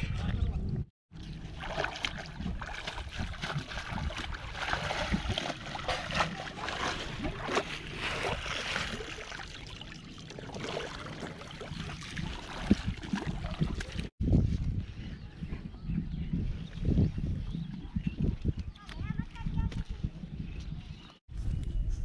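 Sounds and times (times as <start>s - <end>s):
water splashing and sloshing: 1.1s - 14.2s.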